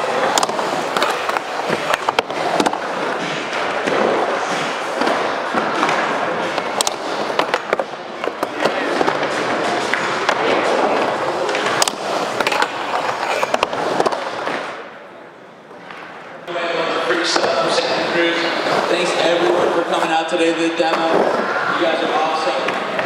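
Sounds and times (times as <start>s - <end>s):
skateboard wheels rolling: 0.0s - 23.0s.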